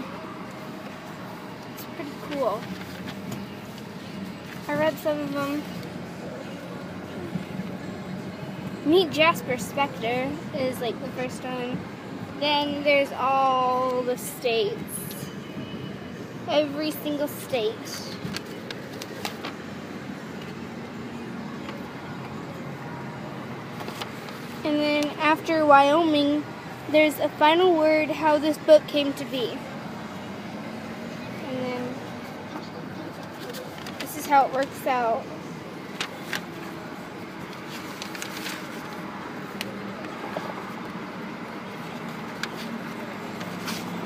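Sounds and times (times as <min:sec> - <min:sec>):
car cabin background noise: 0:00.0 - 0:44.0
book pages turning: 0:23.8 - 0:24.6, 0:33.2 - 0:34.8, 0:35.9 - 0:36.7, 0:37.5 - 0:40.9, 0:41.8 - 0:44.0.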